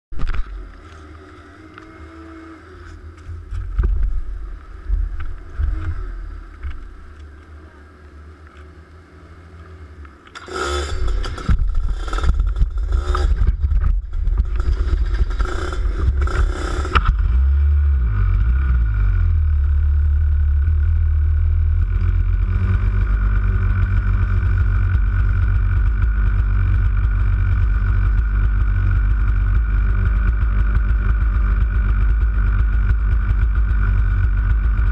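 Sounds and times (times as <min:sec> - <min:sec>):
engine revving: 0:00.2 - 0:07.9, 0:09.8 - 0:34.9
kart engines running: 0:00.2 - 0:17.7, 0:19.5 - 0:34.9.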